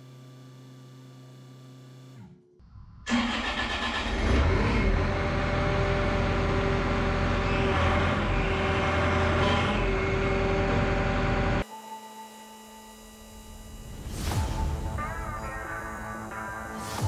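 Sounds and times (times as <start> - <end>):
diesel engine running steadily: 4.3 - 11.6
steady tone: 9.8 - 17.0.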